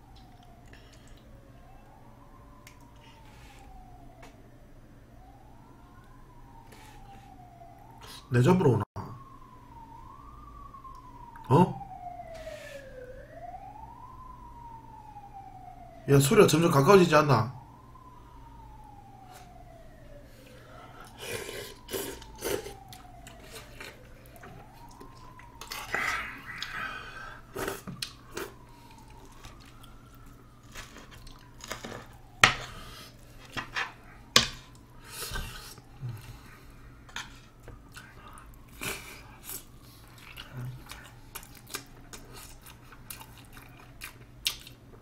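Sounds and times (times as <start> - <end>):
faint distant siren: 0.0 - 45.0
chewing: 20.4 - 32.2, 37.2 - 45.0.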